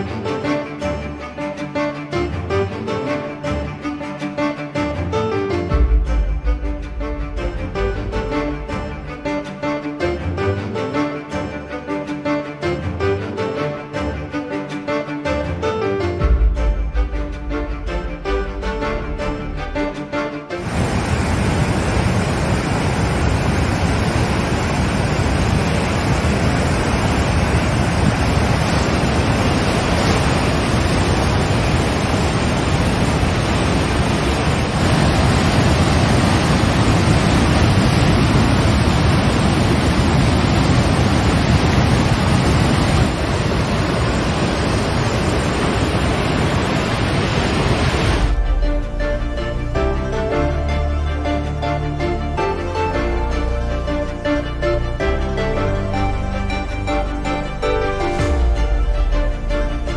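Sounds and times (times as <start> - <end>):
river rushing over a weir: 20.6 - 48.6.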